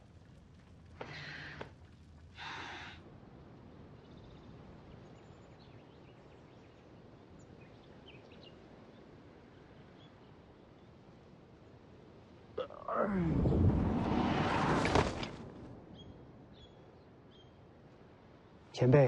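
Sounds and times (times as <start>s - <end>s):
breathy rushes of noise: 12.9s - 15.6s.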